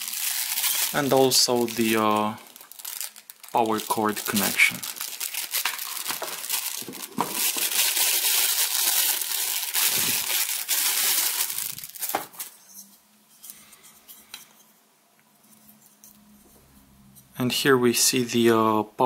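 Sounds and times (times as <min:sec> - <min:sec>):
plastic bag crinkling: 0:00.0 - 0:12.6.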